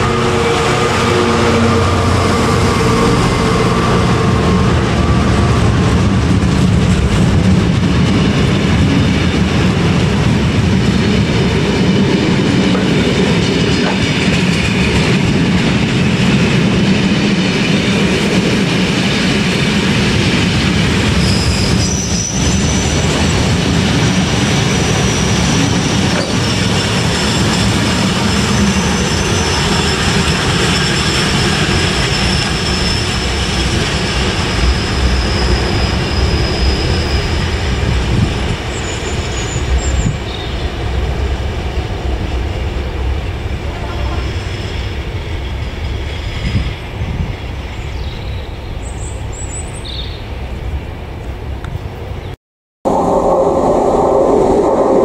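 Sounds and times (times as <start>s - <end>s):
train wheels rumbling on rails: 0.0s - 52.2s
high thin wheel squeal: 21.1s - 23.1s, 24.6s - 37.9s.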